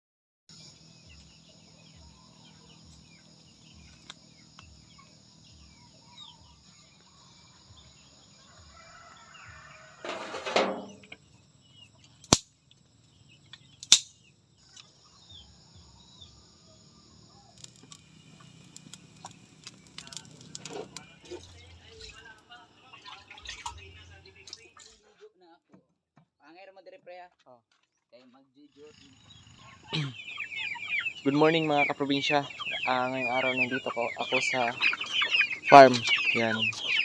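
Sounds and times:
bird calls: 0.5 - 25.0, 28.7 - 37.0
chickens calling: 1.8 - 11.0, 29.0 - 37.0
sharp clicks: 13.5 - 14.1.

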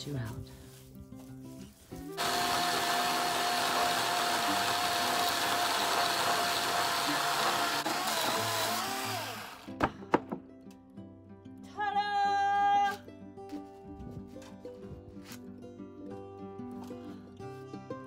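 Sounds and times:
electric chainsaw cutting wood: 2.2 - 9.9.

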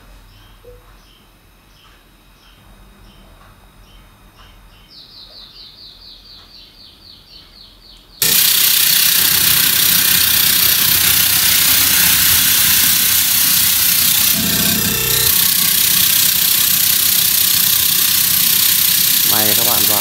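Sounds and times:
loud static from amplifier: 8.2 - 20.0.

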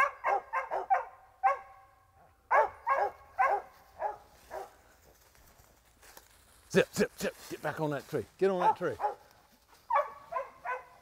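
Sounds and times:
dogs barking: 0.0 - 4.8, 8.6 - 11.0.

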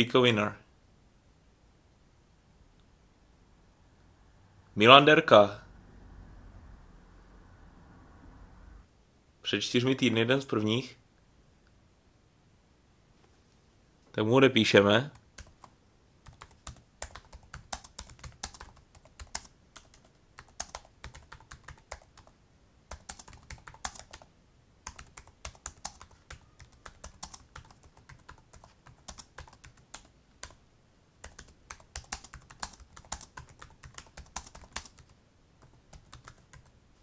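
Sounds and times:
typing on computer keyboard: 15.1 - 22.3, 22.9 - 30.6, 31.2 - 36.7.

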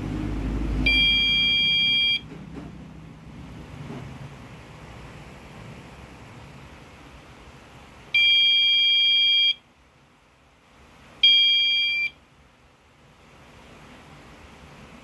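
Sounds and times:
high-pitched alarm beeps: 0.8 - 2.2, 8.2 - 9.6, 11.2 - 12.2.

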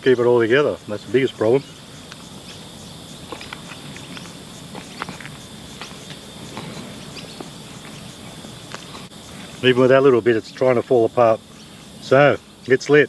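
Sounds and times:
insects chirring: 0.0 - 13.0
chewing crunches: 2.0 - 9.7.

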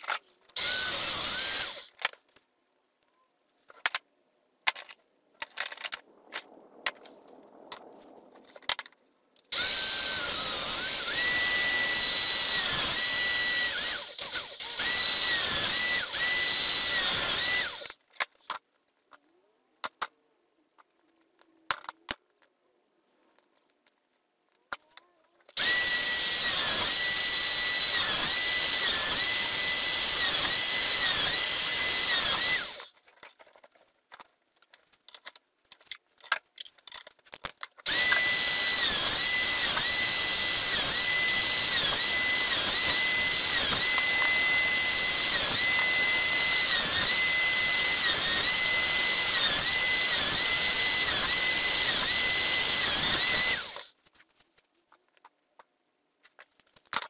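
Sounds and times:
drill press whining: 9.5 - 18.0, 25.6 - 32.9, 37.9 - 53.9
light clicks and handling: 18.0 - 22.6, 32.9 - 37.9, 54.0 - 57.0.

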